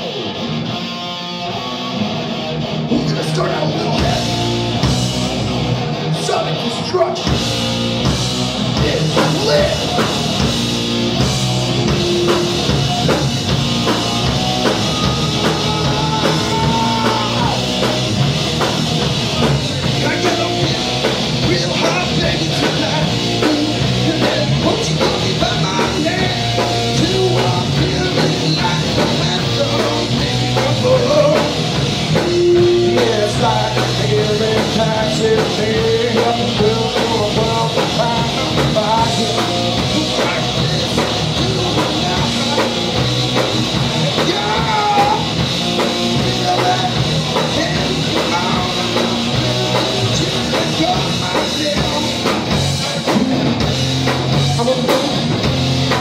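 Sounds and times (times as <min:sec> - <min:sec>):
heavy rock band playing: 0:00.0 - 0:56.0
person singing: 0:11.7 - 0:17.9, 0:19.4 - 0:45.4, 0:46.0 - 0:53.3.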